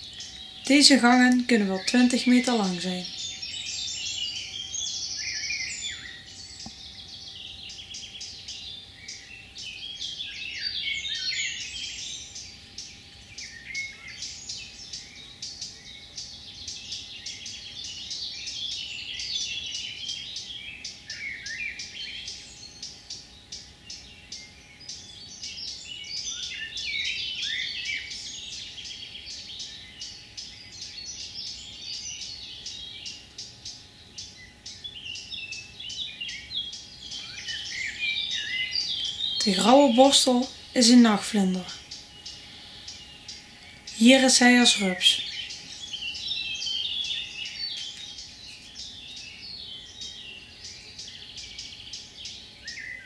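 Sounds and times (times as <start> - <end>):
songbirds singing: 0.0 - 53.0.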